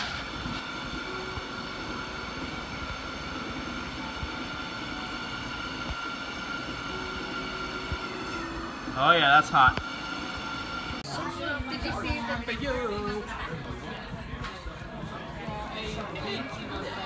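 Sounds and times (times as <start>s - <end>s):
high-pitched whine: 0.0s - 13.0s
mechanical hum of lab equipment: 0.0s - 13.8s.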